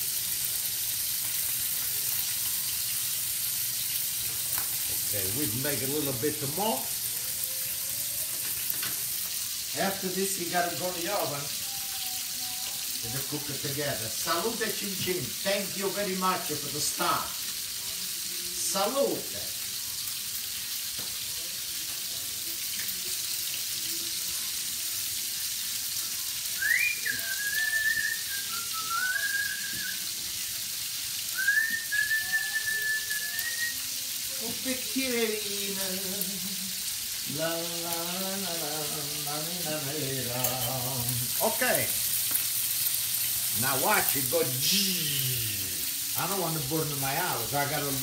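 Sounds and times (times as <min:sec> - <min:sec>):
food sizzling in oil: 0:00.0 - 0:48.0
man singing wordless melody: 0:09.7 - 0:17.4, 0:32.0 - 0:42.0, 0:43.5 - 0:48.0
man whistling: 0:26.6 - 0:30.2, 0:31.3 - 0:34.0.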